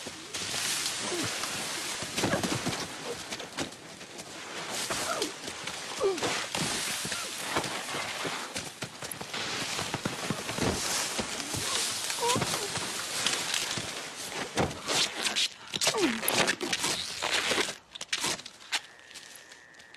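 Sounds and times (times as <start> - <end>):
rocks thudding and clattering: 0.3 - 15.0.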